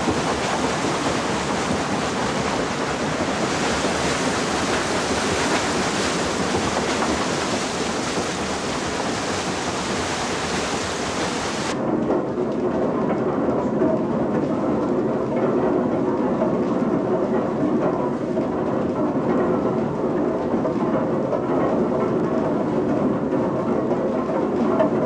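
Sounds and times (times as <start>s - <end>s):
water cascading off waterwheel: 0.0s - 11.8s
mill gear wheels rumbling: 0.0s - 25.0s.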